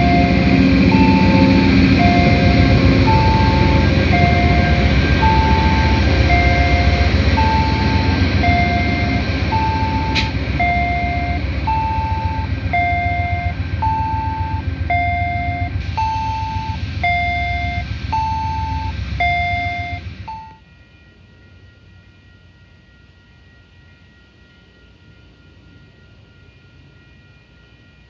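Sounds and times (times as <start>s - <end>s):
two-tone electronic warning beeps: 0.0s - 21.2s
diesel locomotive rumble: 0.0s - 28.0s.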